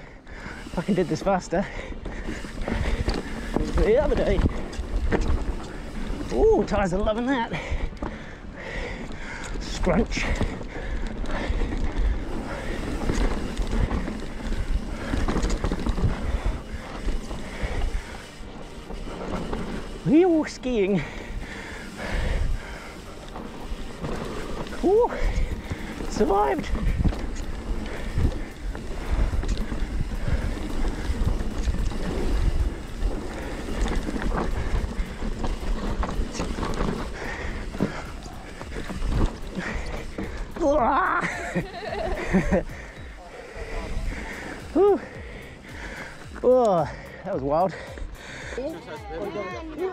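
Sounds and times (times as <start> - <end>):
bike tyres skidding through dirt: 0.0 - 48.4
bike knocks and rattles: 23.4 - 42.8
wind rushing over microphone: 24.8 - 40.6.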